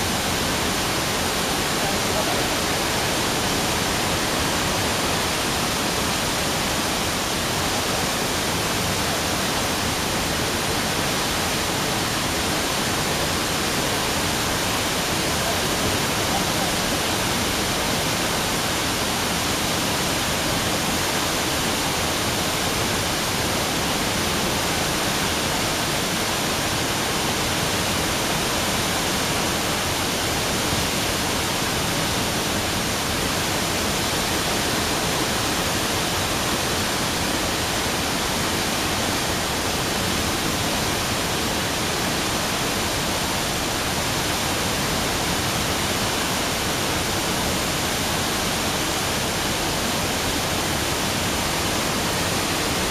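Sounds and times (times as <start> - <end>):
water rushing from dam gates: 0.0 - 52.9.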